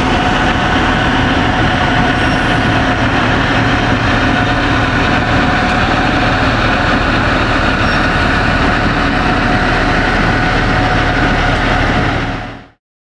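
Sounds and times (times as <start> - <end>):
truck engines rumbling: 0.0 - 12.7.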